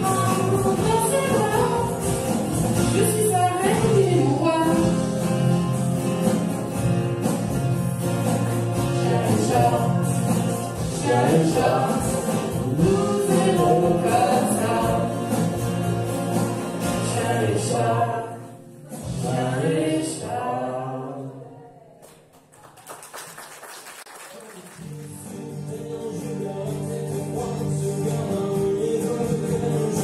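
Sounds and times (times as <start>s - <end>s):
acoustic guitars: 0.0s - 21.2s, 24.8s - 30.0s
group singing: 8.7s - 21.7s, 25.2s - 30.0s.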